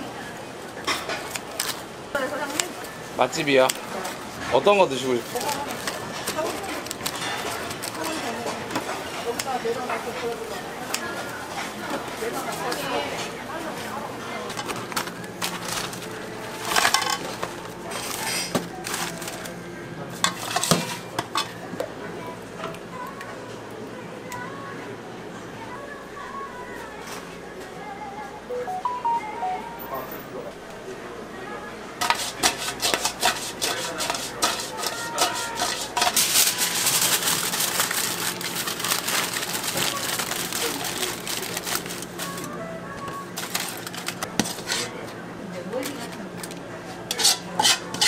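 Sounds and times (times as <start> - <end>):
foil paper packaging crinkling: 4.8 - 8.5, 14.6 - 19.6, 34.4 - 44.7
metal ladle scraping wok: 32.0 - 36.8, 47.1 - 48.0.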